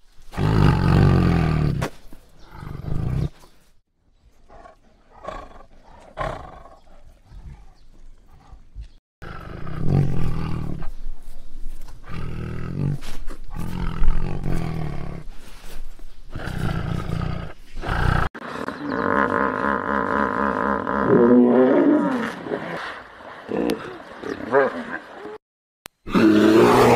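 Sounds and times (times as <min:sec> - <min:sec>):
tigers roaring and snarling: 0:04.5 - 0:10.9, 0:16.3 - 0:25.4, 0:26.1 - 0:26.9.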